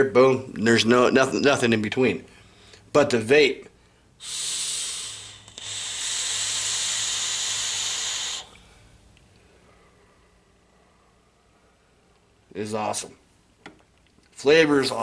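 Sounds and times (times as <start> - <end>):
airy hiss of vaping: 4.2 - 8.6.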